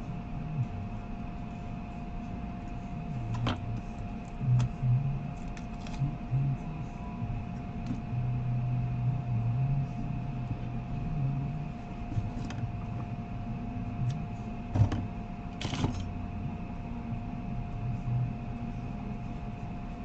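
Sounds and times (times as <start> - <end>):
faint high whine: 0.0 - 20.0
machine hum: 0.0 - 20.0.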